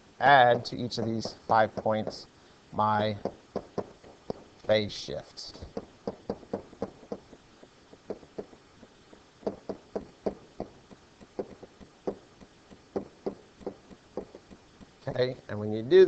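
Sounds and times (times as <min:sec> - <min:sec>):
pen tapping on whiteboard: 0:00.5 - 0:02.2, 0:03.2 - 0:04.4, 0:09.4 - 0:12.2, 0:13.0 - 0:14.6.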